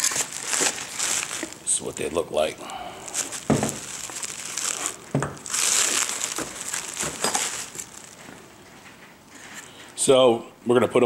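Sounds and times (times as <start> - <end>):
packaging crinkling: 0.0 - 9.9.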